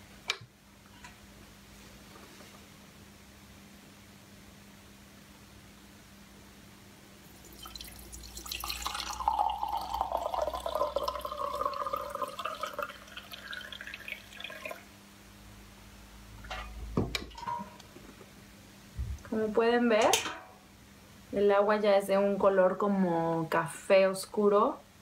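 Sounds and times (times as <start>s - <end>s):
liquid pouring into glass jar: 7.3s - 14.9s.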